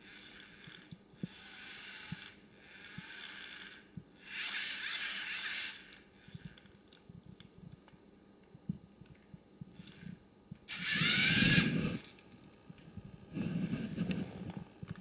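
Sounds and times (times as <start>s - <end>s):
servo motors whirring: 0.1s - 6.6s, 10.7s - 12.1s.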